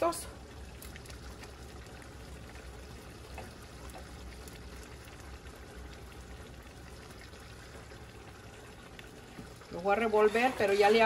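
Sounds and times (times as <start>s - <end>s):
pot of beans bubbling: 0.0s - 11.0s.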